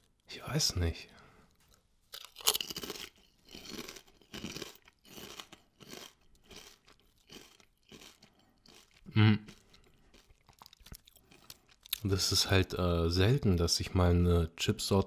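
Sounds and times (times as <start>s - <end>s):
chewing crunchy potato chips: 1.6s - 12.1s
low throat sound: 9.1s - 9.5s.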